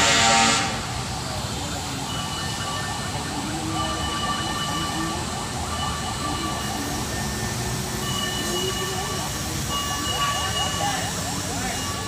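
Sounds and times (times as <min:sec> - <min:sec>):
heavy truck engine running: 0:00.0 - 0:12.0.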